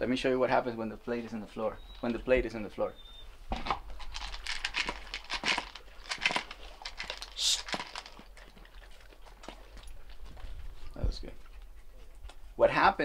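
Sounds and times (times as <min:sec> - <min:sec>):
dogs crunching kibble: 0:03.5 - 0:12.5.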